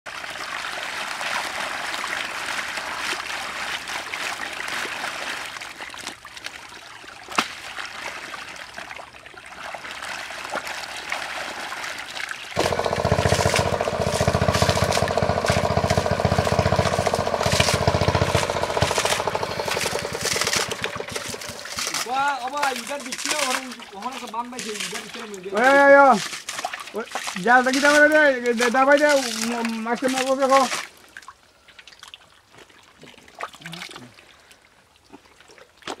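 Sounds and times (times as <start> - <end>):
muddy water sloshing: 0.1 - 36.0
loud engine drone: 12.6 - 22.0.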